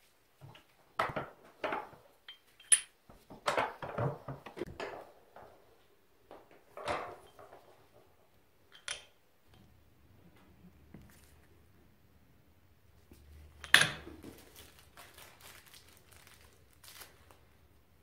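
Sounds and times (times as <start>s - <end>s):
metal parts clinking: 2.3s - 3.0s, 8.7s - 9.2s.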